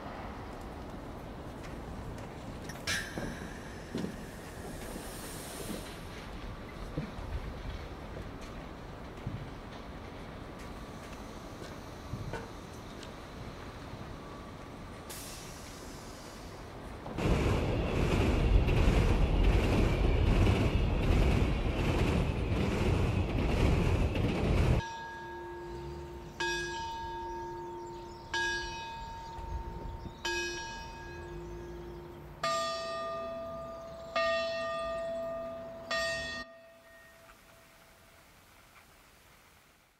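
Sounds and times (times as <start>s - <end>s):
train passing with rushing clatter: 0.0s - 39.5s
bells tolling slowly: 24.8s - 37.7s.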